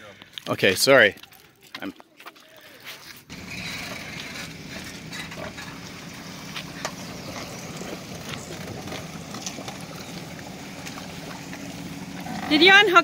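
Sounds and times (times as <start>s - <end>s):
engine idling: 3.3s - 13.0s.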